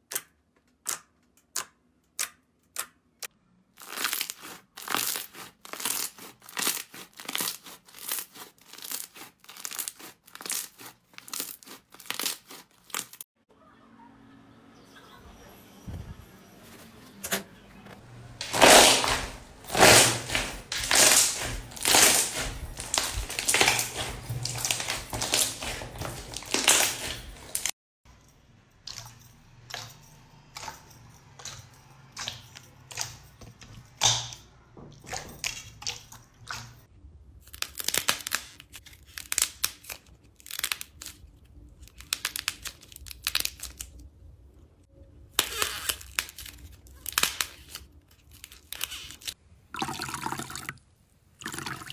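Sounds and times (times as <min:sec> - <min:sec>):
slime crackling and squelching: 0:03.7 - 0:13.3, 0:18.4 - 0:27.8.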